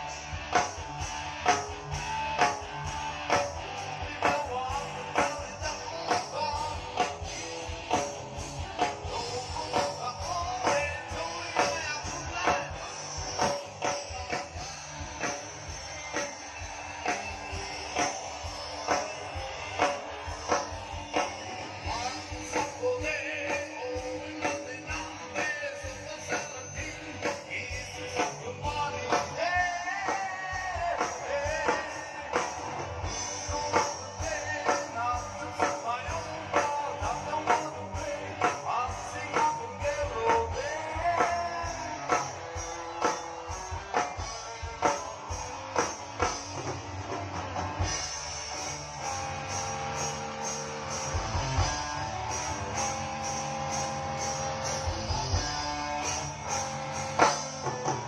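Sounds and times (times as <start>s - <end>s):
drum kit beat: 0.0s - 58.0s
rock band over loudspeakers: 0.0s - 58.0s.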